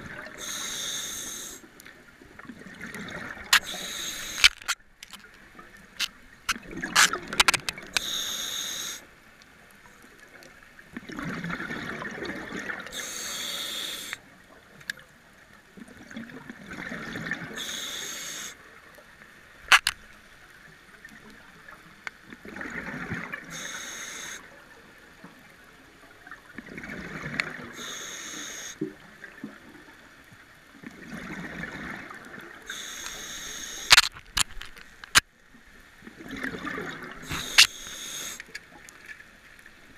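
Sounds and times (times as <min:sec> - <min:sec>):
scuba diver breathing underwater: 0:00.1 - 0:01.7, 0:03.2 - 0:04.8, 0:07.9 - 0:09.1, 0:12.9 - 0:14.2, 0:17.4 - 0:18.6, 0:23.5 - 0:24.5, 0:27.7 - 0:28.9, 0:32.7 - 0:34.1, 0:37.2 - 0:38.6
sharp clicks: 0:19.7 - 0:20.0.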